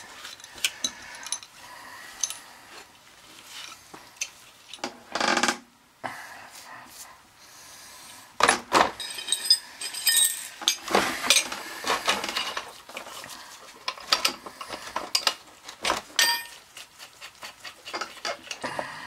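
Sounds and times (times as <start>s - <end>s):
metal parts clanking in a tray: 8.4s - 12.7s, 15.0s - 16.6s.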